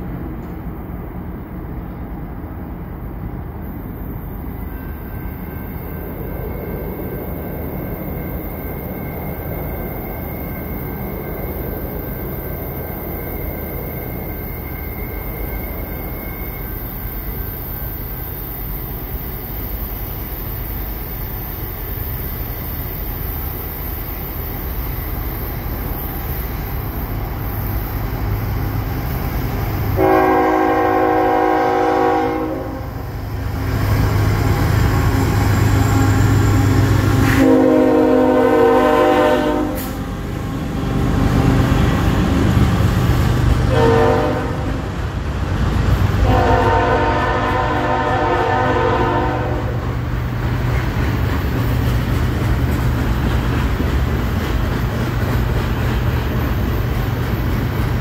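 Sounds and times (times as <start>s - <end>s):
train air horn blasts: 30.0s - 33.0s, 37.2s - 40.0s, 43.7s - 44.8s, 46.2s - 49.8s.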